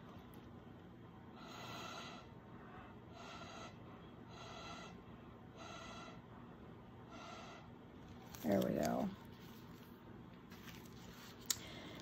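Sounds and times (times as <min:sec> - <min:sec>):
faint breathing: 0:01.3 - 0:06.3, 0:11.5 - 0:12.0.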